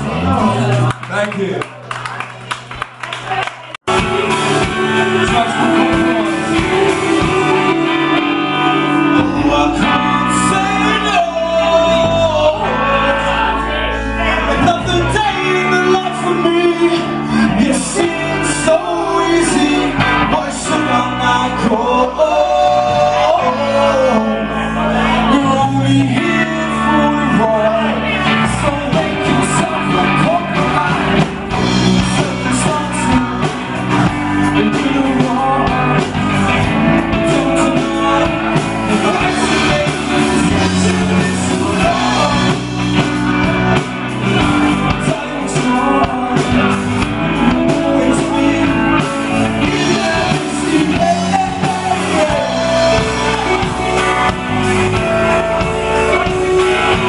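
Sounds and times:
live rock band with singer: 0.0 - 57.0.

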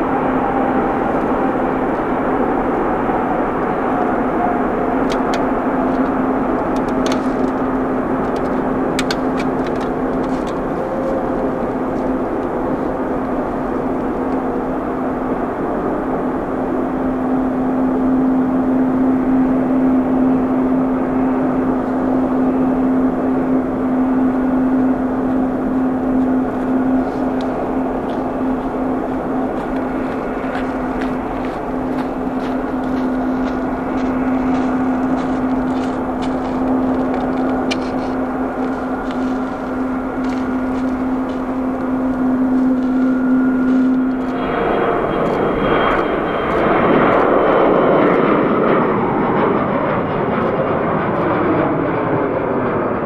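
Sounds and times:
jet engines running: 0.0 - 53.0.

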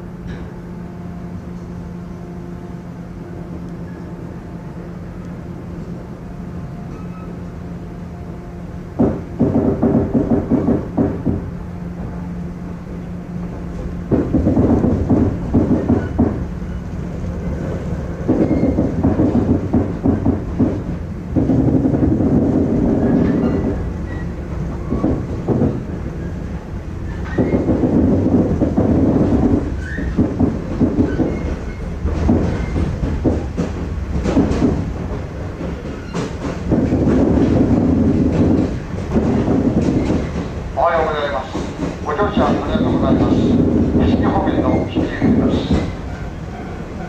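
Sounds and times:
low rumble of moving train: 0.0 - 47.0
train wheels clattering over joints: 9.0 - 11.5, 13.4 - 47.0.

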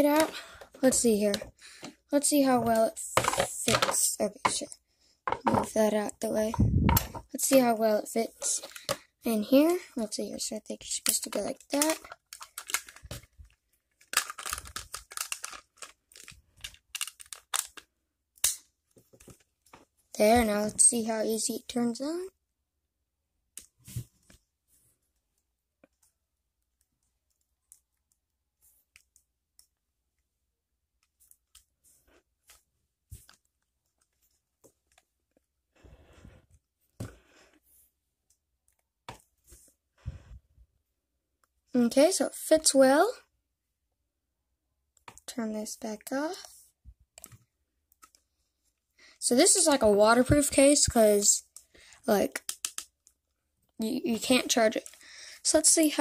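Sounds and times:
plastic clicks and rubbing: 11.0 - 19.8, 52.4 - 53.2.

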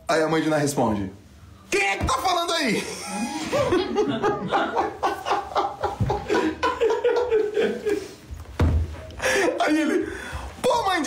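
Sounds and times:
man laughing hard: 2.8 - 8.2.

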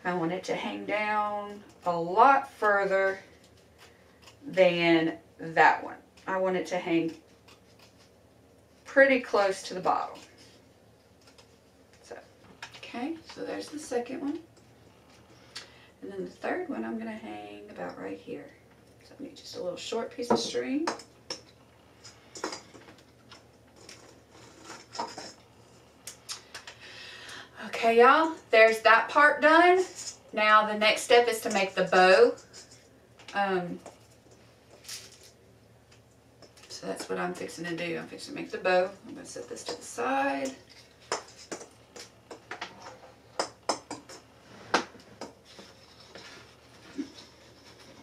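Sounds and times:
faint clicks and rustles: 10.0 - 15.7, 39.4 - 48.0.

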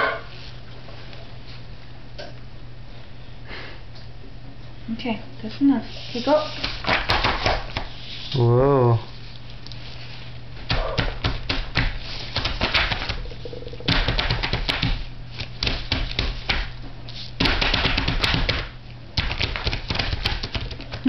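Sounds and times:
steady low hum: 0.0 - 21.0
hands tapping paint on paper: 6.6 - 8.0, 10.7 - 13.3, 13.9 - 16.7, 17.4 - 21.0.

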